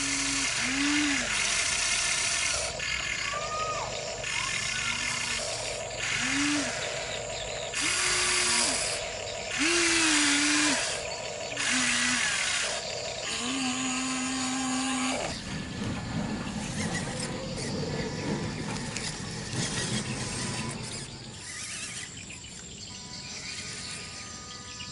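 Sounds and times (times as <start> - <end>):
electric motors whining in bursts: 0.0 - 24.9
low rough motor sound: 12.8 - 24.8.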